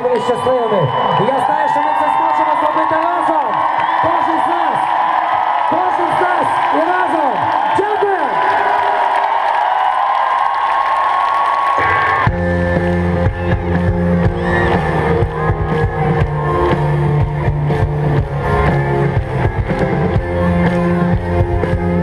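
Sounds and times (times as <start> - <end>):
live rock band: 11.8 - 22.0.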